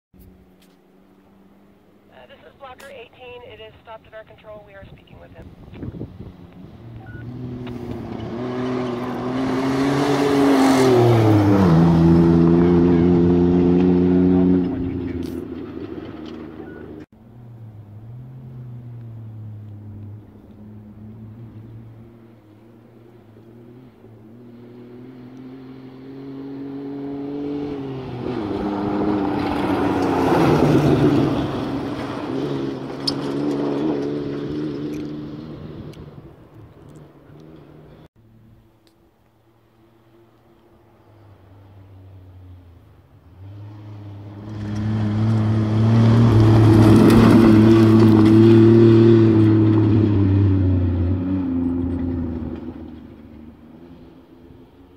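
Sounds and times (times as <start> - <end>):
truck engine passing at full throttle: 5.4 - 38.1, 39.9 - 54.9
tyres on gravel: 44.3 - 49.9.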